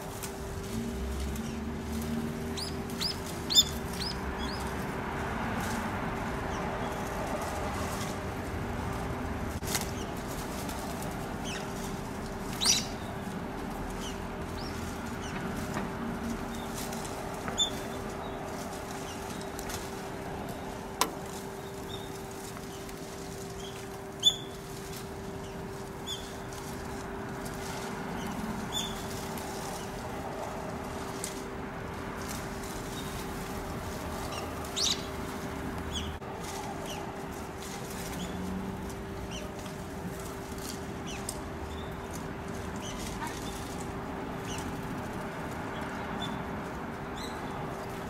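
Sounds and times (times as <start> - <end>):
wings fluttering in leaves: 0.0 - 48.0
birds calling sharply: 2.5 - 4.7, 12.4 - 13.4, 17.5 - 22.9, 34.2 - 35.3.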